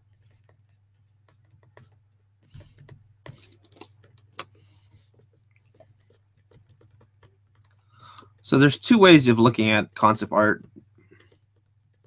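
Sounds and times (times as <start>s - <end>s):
light clicks and taps: 0.2s - 8.6s.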